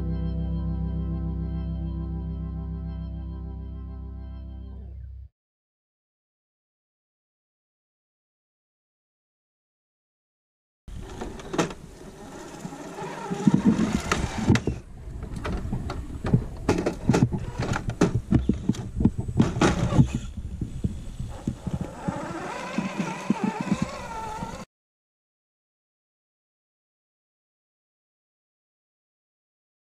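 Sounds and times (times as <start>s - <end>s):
electric motor and gears whining: 10.9s - 24.7s
sharp clicks and knocks: 13.3s - 20.3s.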